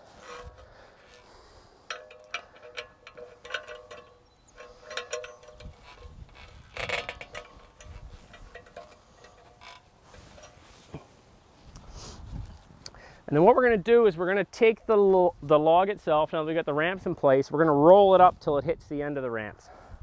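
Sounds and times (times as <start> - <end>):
metal fender clicks and clanks: 0.0 - 11.2
metallic ring: 0.0 - 11.2.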